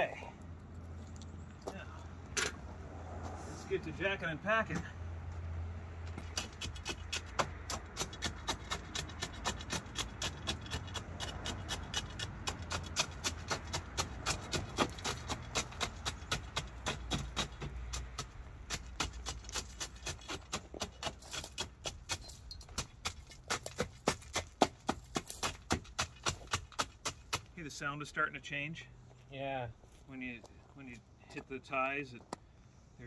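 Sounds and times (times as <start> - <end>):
tamping rod striking gravel: 6.1 - 27.7.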